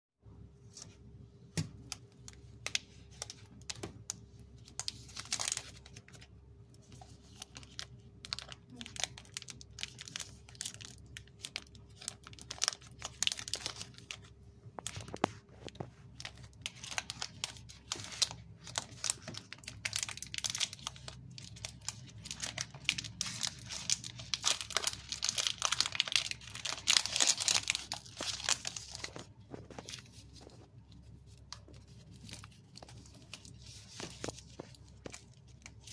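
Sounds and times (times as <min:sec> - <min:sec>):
plastic wrapper crinkling: 0:01.8 - 0:35.9
foil wrapper rustling: 0:04.6 - 0:06.3, 0:07.0 - 0:30.6.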